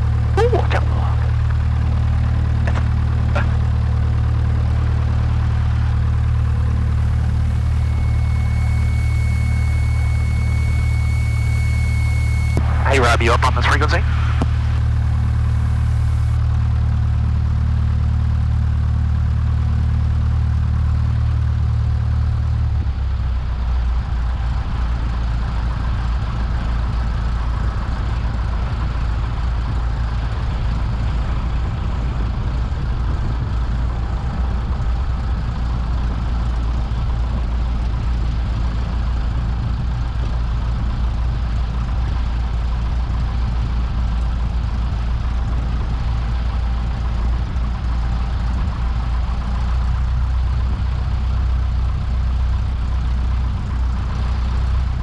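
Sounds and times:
aircraft engine droning: 0.0 - 16.4.

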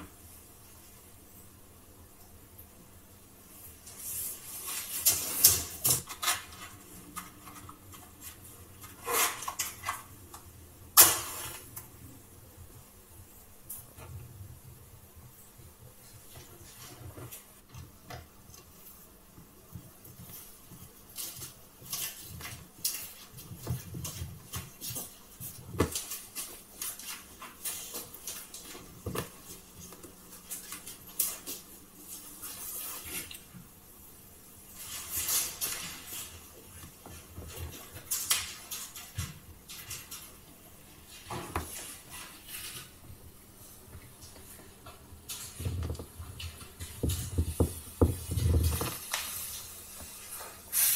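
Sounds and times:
short hissy rustles: 49.0 - 50.9.

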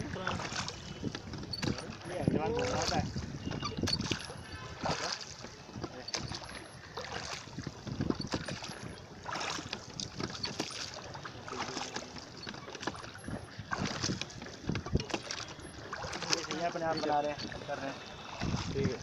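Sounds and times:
wind on microphone: 0.0 - 10.4, 13.1 - 16.2, 18.2 - 19.0
water splashing against boat: 0.0 - 19.0.

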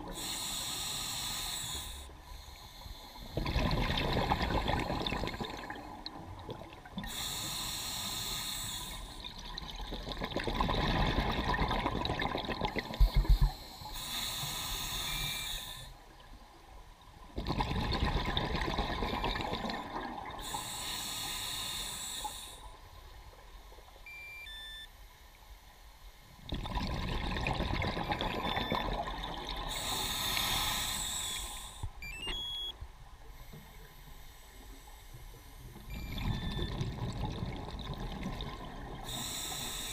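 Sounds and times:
diver breathing through regulator: 0.1 - 3.6, 7.0 - 9.2, 13.0 - 16.0, 19.8 - 22.8, 29.7 - 32.0, 39.0 - 39.9
exhaled bubbles rushing: 3.4 - 6.9, 9.2 - 13.4, 17.4 - 20.4, 26.5 - 29.7, 36.0 - 39.0.

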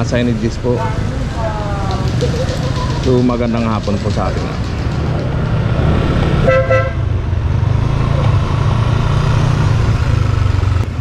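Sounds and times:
motorcycle engine rumbling: 0.0 - 11.0
motorcycle horn toot: 6.4 - 7.0.

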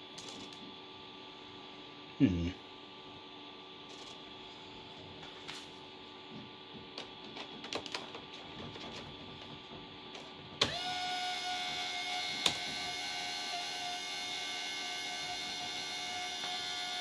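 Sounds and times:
motor whining steadily: 9.3 - 17.0.

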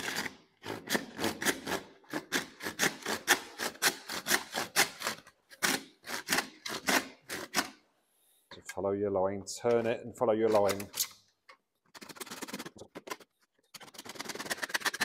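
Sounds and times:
hand saw rasping through plastic pipe: 0.0 - 7.7, 13.8 - 15.0.

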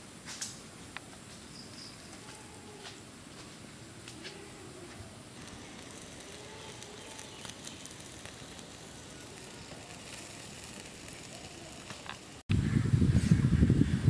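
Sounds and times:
fat sizzling on embers: 0.1 - 12.5
fire crackles: 0.1 - 12.5.

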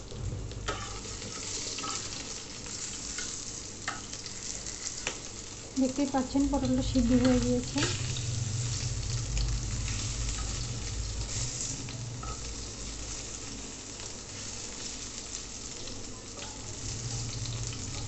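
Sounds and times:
vegetables sizzling in oil: 0.0 - 18.0
metal spatula scraping and tapping: 0.7 - 2.1.

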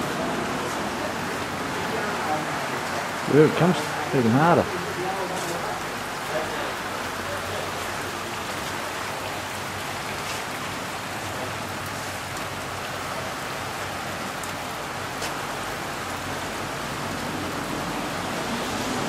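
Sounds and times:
heavy rain on pool and paving: 0.0 - 19.0.

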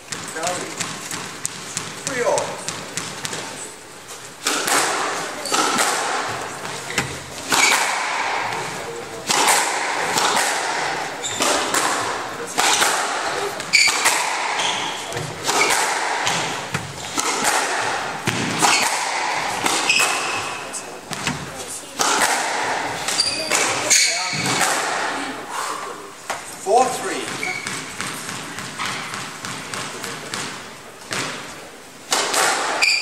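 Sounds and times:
squash ball cracking off rackets: 0.0 - 3.6, 4.3 - 25.2, 27.2 - 33.0
shoe squeaks: 11.2 - 11.6, 13.7 - 14.0, 14.6 - 15.2, 19.8 - 20.8, 23.1 - 24.5, 27.4 - 27.9, 32.8 - 33.0.

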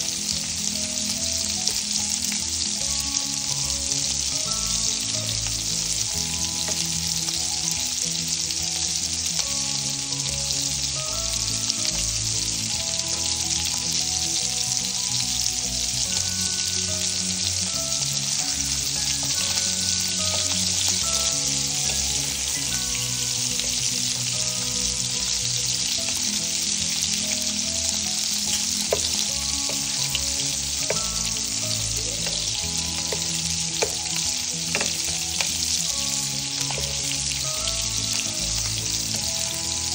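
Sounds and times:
sausage sizzling in frying pan: 0.0 - 39.9
spatula tapping pan: 6.6 - 6.9, 28.4 - 35.7.

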